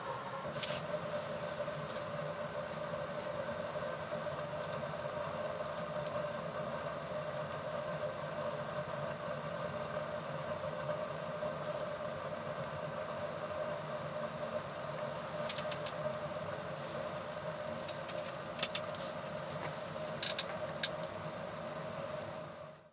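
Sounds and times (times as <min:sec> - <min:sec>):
stove flames rushing: 0:00.0 - 0:22.9
burning wood crackling: 0:13.6 - 0:22.4.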